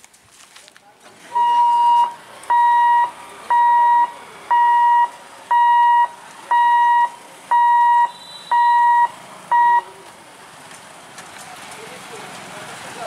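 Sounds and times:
barrier warning buzzer beeping: 1.4s - 9.9s.

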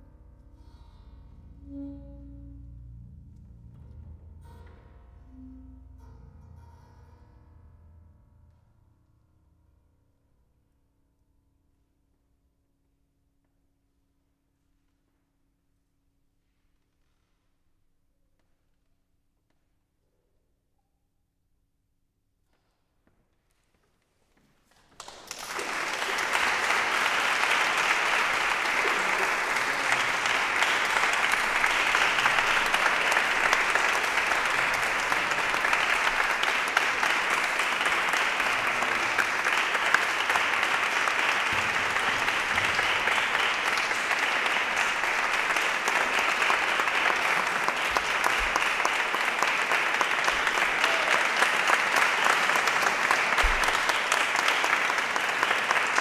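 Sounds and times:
audience applauding: 24.7s - 56.0s.

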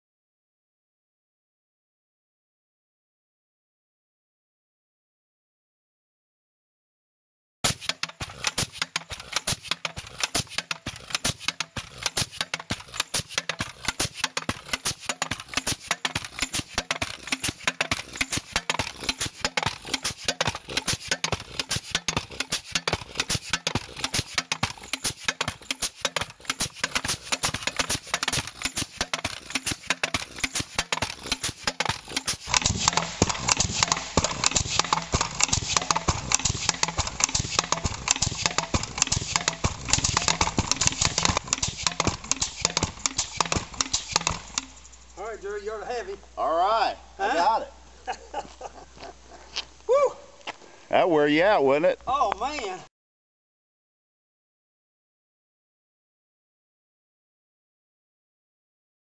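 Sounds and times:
rammer stamping into dirt: 7.6s - 44.8s.

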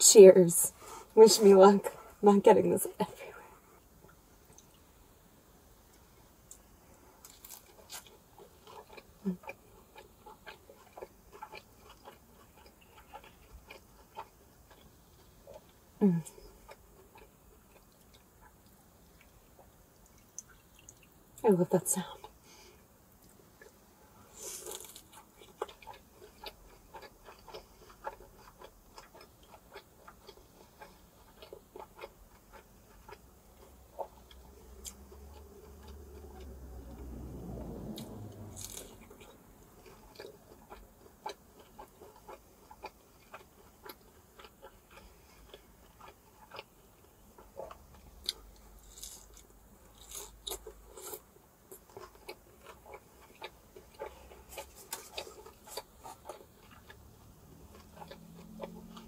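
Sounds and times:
chewing: 5.9s - 21.4s, 23.2s - 59.0s
crunching crispy taco: 7.2s - 15.6s, 24.3s - 37.1s, 37.8s - 46.7s, 47.4s - 57.0s.

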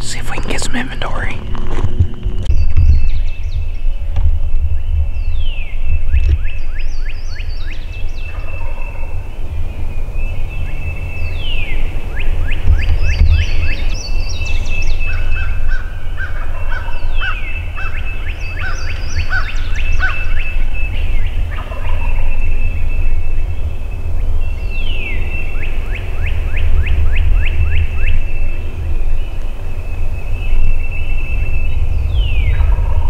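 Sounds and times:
birds calling: 0.0s - 33.0s
songbird singing: 0.0s - 33.0s
steady low rumble: 0.0s - 33.0s
turkey gobbling: 15.4s - 18.0s, 21.5s - 22.2s.

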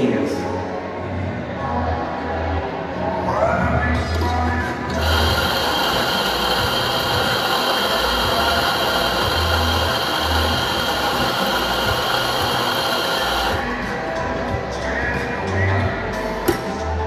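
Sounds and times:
espresso grinder grinding beans: 4.9s - 13.6s.

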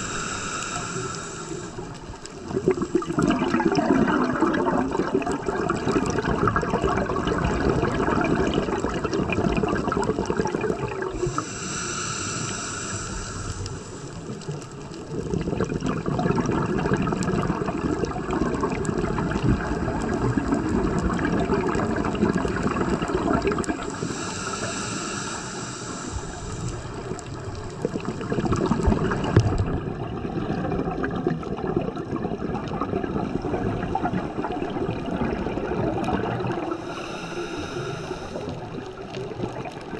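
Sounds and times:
diver breathing through regulator: 0.0s - 2.4s, 11.1s - 14.7s, 22.8s - 29.4s, 36.5s - 39.1s
water bubbling: 0.0s - 39.9s.

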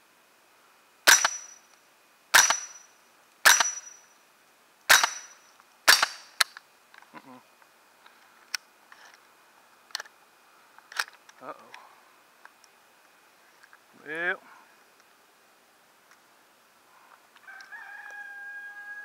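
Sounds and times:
rifle shots: 1.1s - 1.6s, 2.3s - 2.8s, 3.4s - 4.0s, 4.9s - 6.4s.

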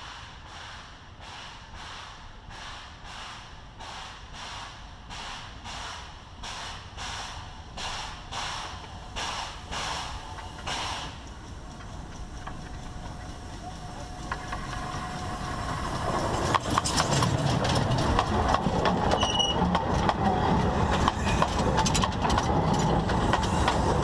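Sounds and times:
steam locomotive exhaust beats: 0.0s - 24.0s.

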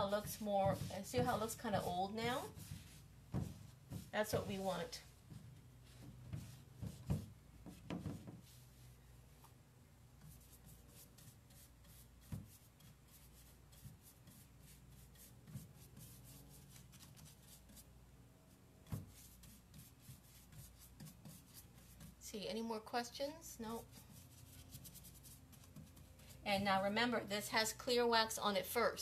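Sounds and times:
brush scrubbing wood: 0.0s - 7.2s, 23.7s - 26.4s.

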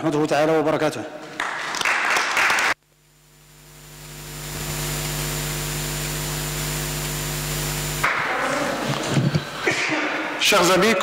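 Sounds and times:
electrical hum and hiss: 2.6s - 11.0s.

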